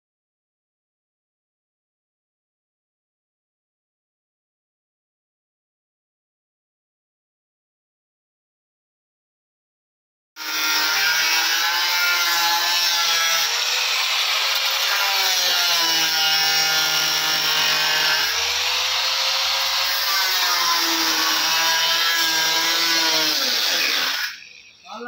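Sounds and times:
angle grinder cutting metal: 10.4 - 25.0.

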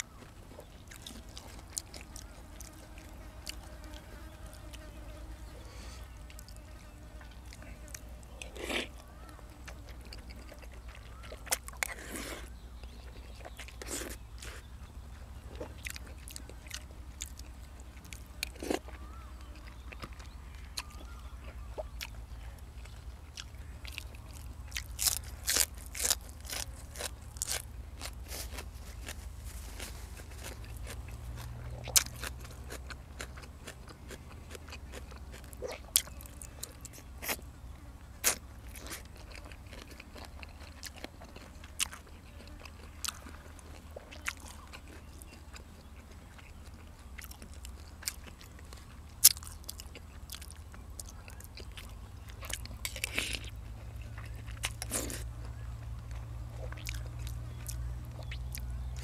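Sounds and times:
man chewing and biting: 0.0 - 5.0, 6.0 - 37.5, 38.2 - 59.0
crisp crunches: 24.0 - 37.4.

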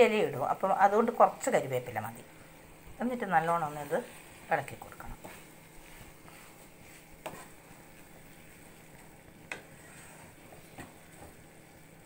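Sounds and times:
spatula stirring food in pan: 2.3 - 12.0
spatula tapping pan: 7.2 - 7.6.

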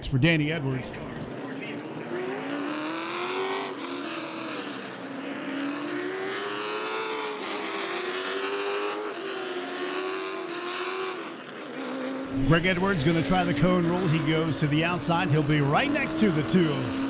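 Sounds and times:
race car engines running: 0.0 - 17.0.

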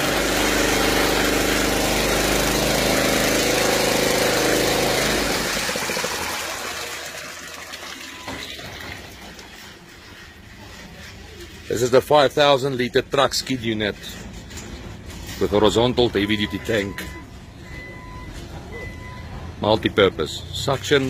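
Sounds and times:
water jet splashing into tank: 0.0 - 10.2
water pump engine running: 0.0 - 16.9.

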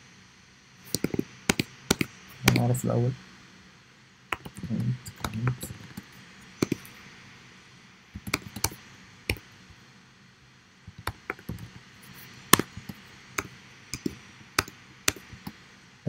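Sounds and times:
typing on computer keyboard: 0.9 - 2.6, 4.3 - 6.0, 6.6 - 6.9, 8.2 - 9.4, 10.9 - 11.8, 12.5 - 15.6.

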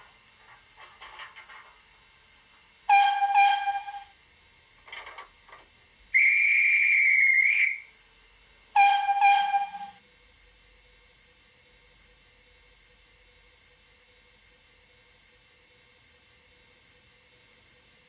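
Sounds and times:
guard's whistle: 2.9 - 4.1, 6.2 - 7.9, 8.8 - 10.0
steam engine whistle toots: 2.9 - 4.1, 6.1 - 7.9, 8.8 - 10.0.

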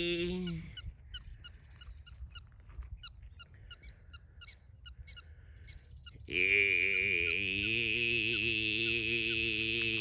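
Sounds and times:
throat singing: 0.0 - 0.8, 6.2 - 10.0.

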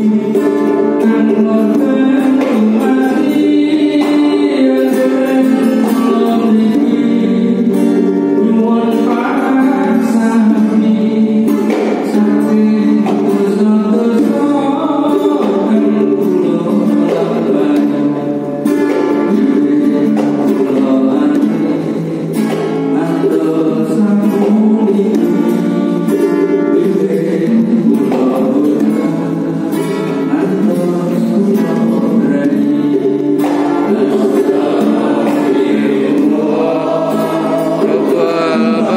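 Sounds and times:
man singing into a microphone: 0.0 - 38.9
men chanting in unison: 33.9 - 38.9.

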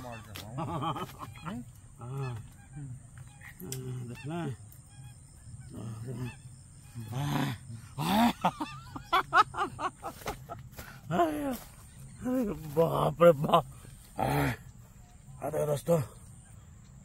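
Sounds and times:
honking bird calls: 0.0 - 17.0.

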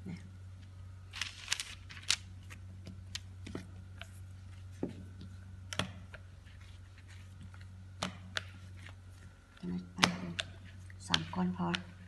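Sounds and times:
steady low hum: 0.0 - 12.0
dough and rolling pin tapping: 10.0 - 12.0.

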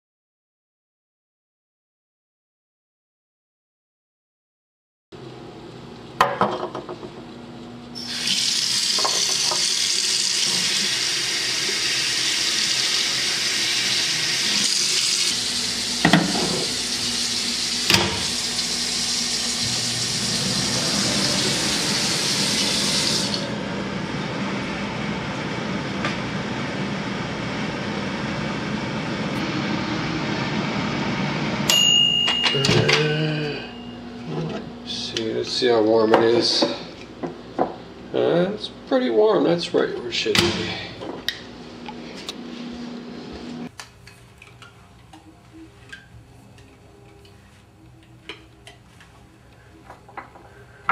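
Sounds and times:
tap water running into sink: 8.1 - 23.4.

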